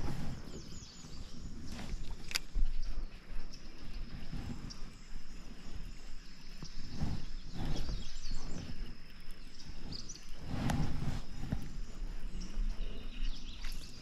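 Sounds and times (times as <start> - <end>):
bird chirps: 0.0 - 14.0
high insect drone: 0.0 - 14.0.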